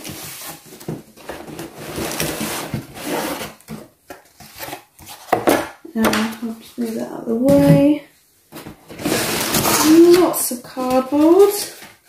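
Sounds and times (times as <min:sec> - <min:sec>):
cardboard scraping against box: 0:00.0 - 0:03.7, 0:08.9 - 0:10.2.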